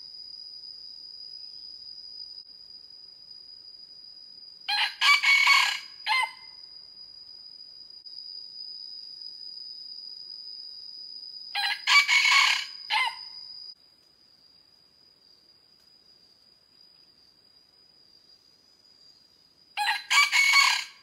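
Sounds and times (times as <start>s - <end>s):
high insect drone: 0.0s - 21.0s
rooster crowing: 4.7s - 6.5s, 11.6s - 13.4s, 19.8s - 21.0s.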